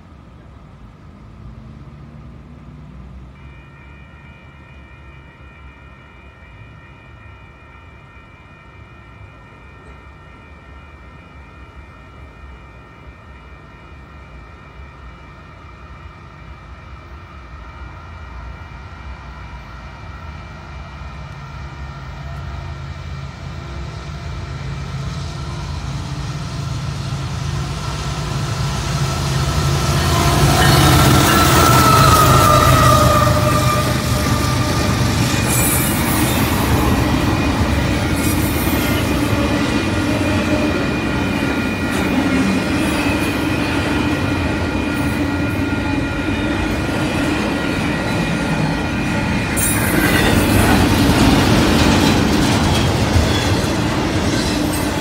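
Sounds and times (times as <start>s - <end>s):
diesel locomotive engine rumble: 0.0s - 55.0s
train horn chord: 29.5s - 37.2s.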